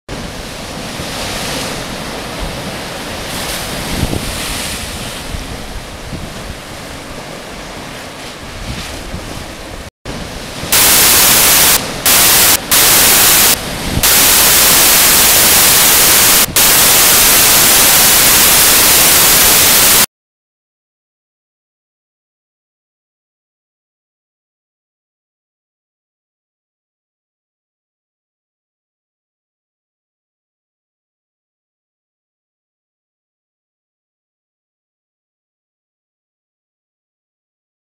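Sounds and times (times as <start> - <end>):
sea waves breaking in cave: 0.1 - 20.0.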